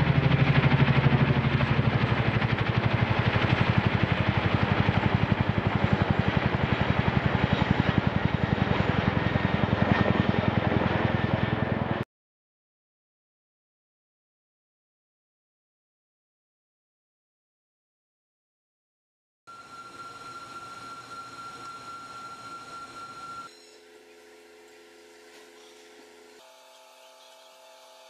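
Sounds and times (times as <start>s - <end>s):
helicopter rotor blades beating: 0.0s - 12.0s, 19.5s - 25.1s.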